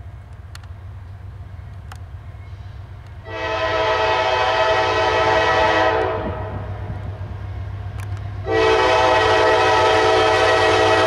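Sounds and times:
diesel locomotive rumbling: 0.0 - 11.0
train horn blast: 3.2 - 6.9, 8.4 - 11.0.

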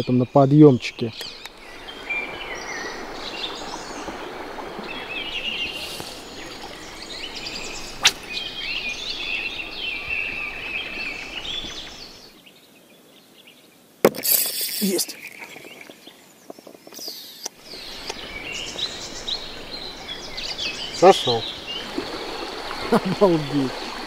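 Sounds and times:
songbirds singing: 0.0 - 13.9, 14.7 - 24.0
rushing outdoor noise: 1.2 - 12.4.

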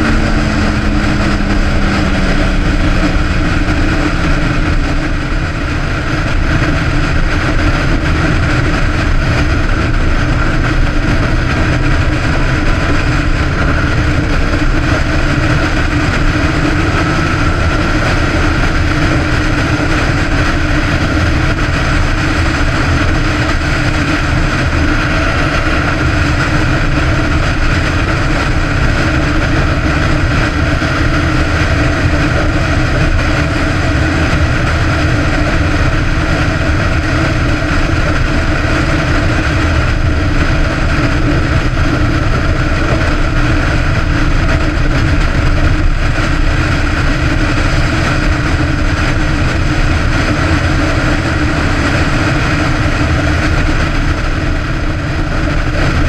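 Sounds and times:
motorcycle engine cruising: 0.0 - 56.0
road and wind noise: 0.0 - 56.0.

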